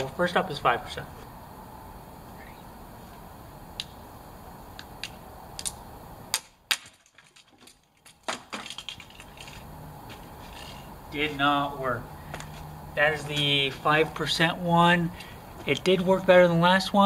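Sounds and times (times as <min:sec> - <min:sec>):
light clatters: 0:07.1 - 0:10.9.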